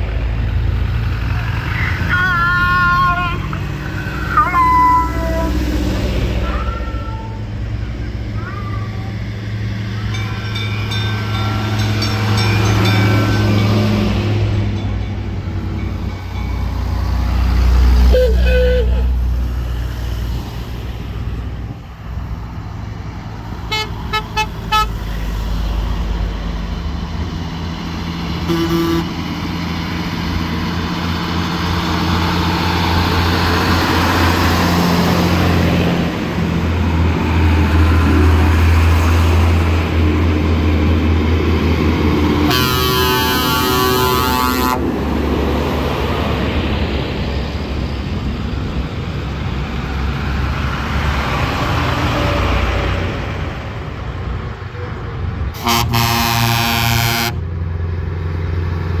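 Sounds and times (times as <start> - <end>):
old vehicles driving past: 0.0 - 59.0
short horn toots: 55.6 - 57.4.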